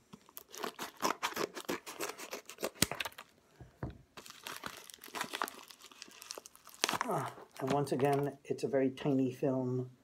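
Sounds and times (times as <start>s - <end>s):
scissors cutting paper: 0.6s - 3.1s.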